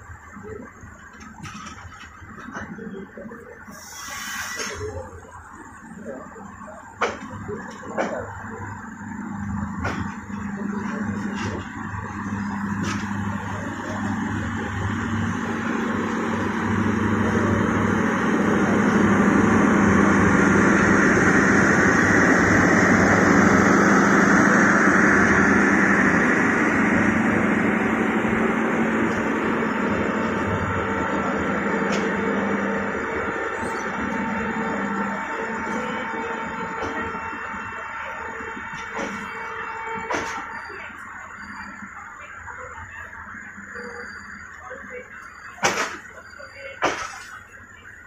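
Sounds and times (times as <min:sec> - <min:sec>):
steady low hum: 0:07.4 - 0:39.6
train wheels on rails: 0:09.4 - 0:42.8, 0:45.4 - 0:47.5.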